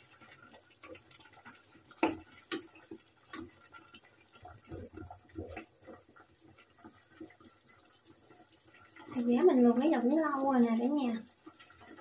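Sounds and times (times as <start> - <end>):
wooden spatula tapping frying pan: 0.0 - 9.3.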